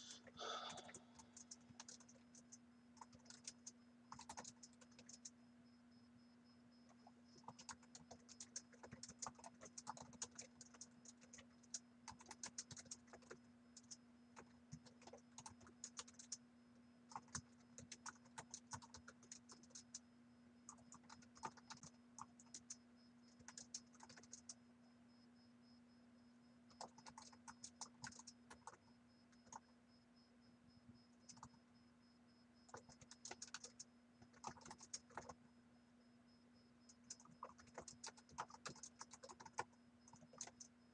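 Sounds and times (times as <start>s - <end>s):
keyboard typing: 0.0s - 5.4s, 6.9s - 16.4s, 17.1s - 20.0s, 20.6s - 24.6s, 26.7s - 29.6s, 31.3s - 31.6s, 32.7s - 35.4s, 36.9s - 40.7s
low electrical hum: 0.0s - 40.9s.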